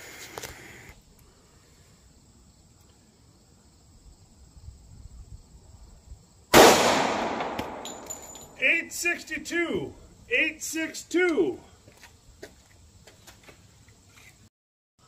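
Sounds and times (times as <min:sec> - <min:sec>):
pistol shot with echo: 0:06.5 - 0:08.6.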